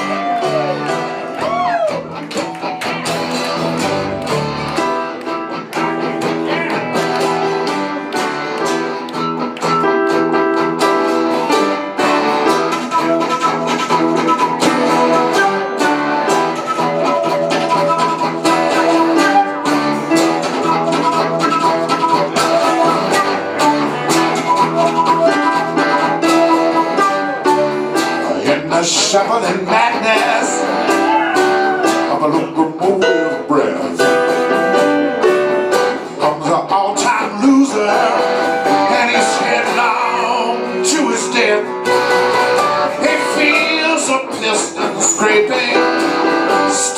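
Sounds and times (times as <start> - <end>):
flute melody: 0.0 - 3.1, 6.5 - 28.5, 30.2 - 32.2
strummed acoustic guitars: 0.0 - 46.9
man singing: 28.2 - 34.3, 36.0 - 42.0, 42.8 - 46.9.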